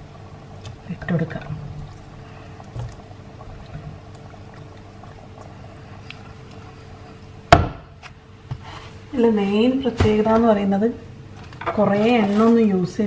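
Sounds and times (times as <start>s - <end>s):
curry bubbling in pot: 0.0s - 7.6s
faint steady hum: 0.0s - 13.0s.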